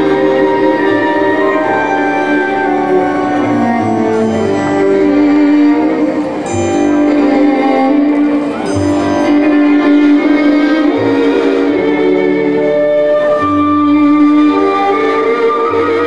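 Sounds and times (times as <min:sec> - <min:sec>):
folk dance music with fiddle: 0:00.0 - 0:16.0.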